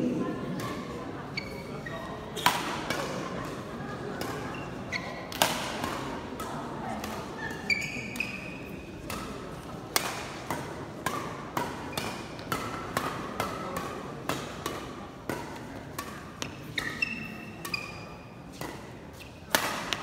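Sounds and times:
sneakers squeaking on court: 1.3s - 2.5s, 4.4s - 5.3s, 7.4s - 8.8s, 16.0s - 19.3s
racket striking shuttlecock: 2.4s - 20.0s.

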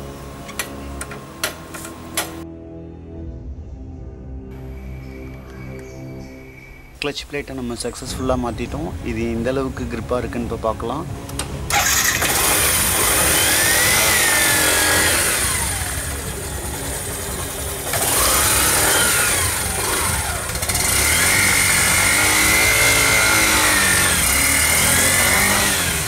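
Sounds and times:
motorcycle engine revving: 11.3s - 26.0s.

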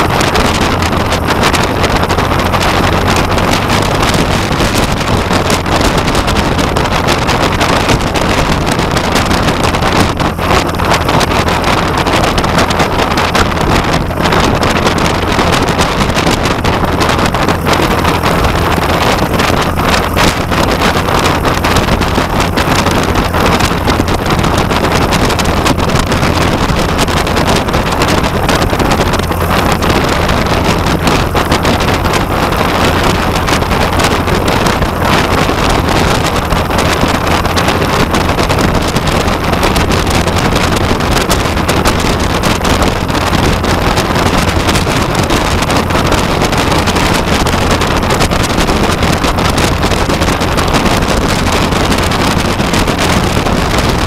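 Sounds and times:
light plane engine and propeller: 0.0s - 54.0s
wind noise on microphone: 0.0s - 54.0s.

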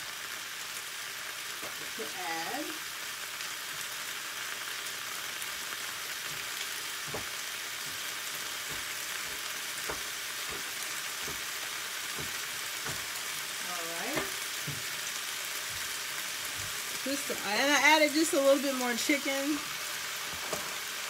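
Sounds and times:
food sizzling in a frying pan: 0.0s - 21.0s
knife knocking on cutting board: 7.1s - 7.3s, 8.7s - 11.5s, 12.2s - 13.1s, 14.2s - 14.9s.

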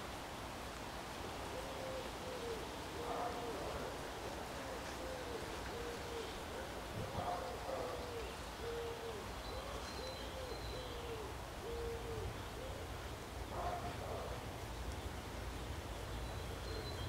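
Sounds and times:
dove cooing: 1.5s - 14.4s.

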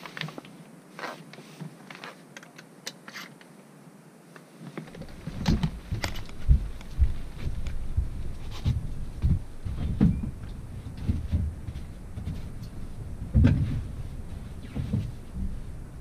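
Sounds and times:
wind buffeting microphone: 5.0s - 16.0s.

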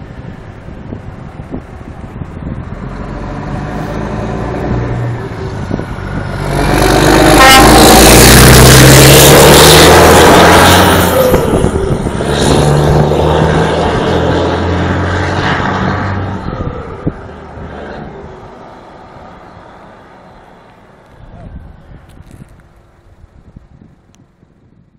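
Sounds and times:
diesel truck accelerating past: 0.0s - 21.0s
truck horn toot: 6.8s - 11.4s.

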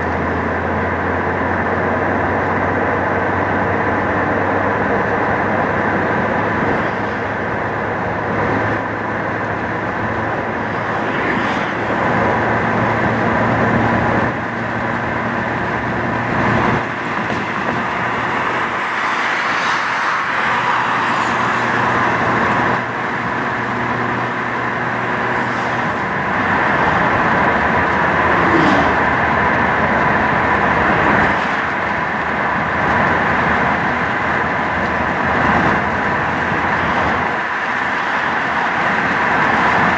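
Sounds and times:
car engine hum: 0.0s - 39.9s
cars passing: 0.0s - 39.9s
tyre roar: 27.9s - 29.4s.

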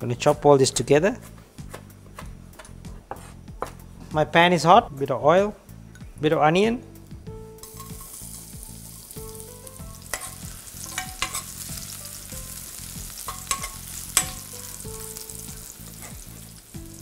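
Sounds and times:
onion sizzling in hot oil: 7.6s - 17.0s
utensil clicking against pan: 13.2s - 14.5s.

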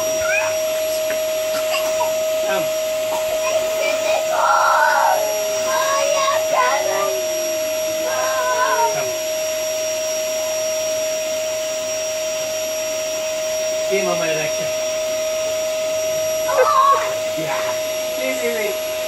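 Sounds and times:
children's high voices: 0.0s - 2.2s, 3.1s - 9.2s, 16.5s - 17.8s
vacuum cleaner whine: 0.0s - 19.0s.

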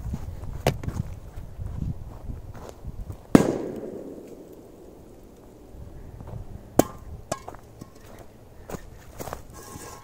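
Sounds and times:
metal bowl clanking on ground: 6.8s - 8.2s.

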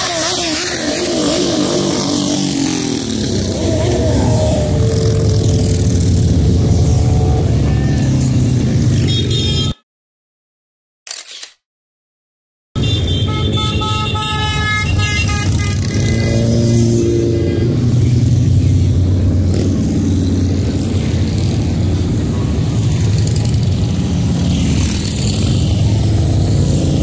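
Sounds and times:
motorcycles rumbling past: 0.0s - 9.3s, 15.4s - 27.0s
horn sounding: 9.0s - 9.8s, 12.8s - 16.6s.

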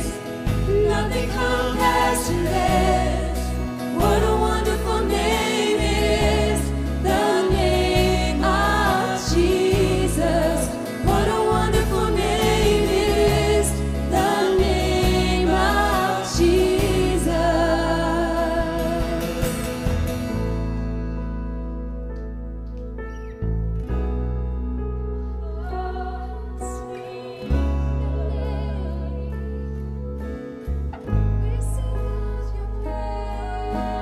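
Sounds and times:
voices singing together: 0.0s - 19.8s, 32.0s - 34.0s.

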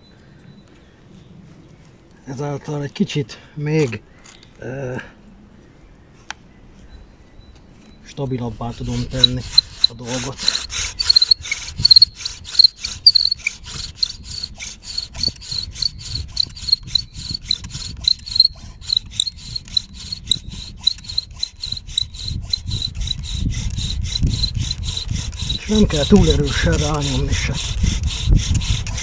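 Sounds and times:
bow drill rasping and squealing: 8.4s - 29.0s
low grinding: 8.8s - 29.0s.

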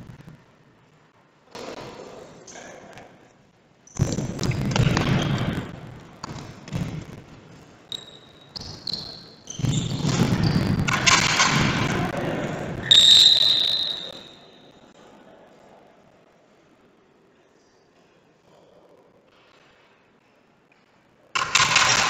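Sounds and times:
short high squeaks: 7.9s - 10.7s, 12.9s - 14.6s.

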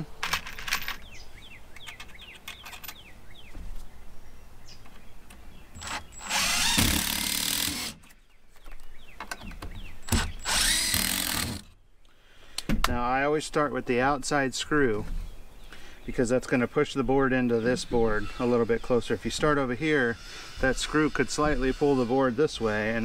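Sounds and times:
power drill driving screws: 5.8s - 8.1s, 10.0s - 11.7s.

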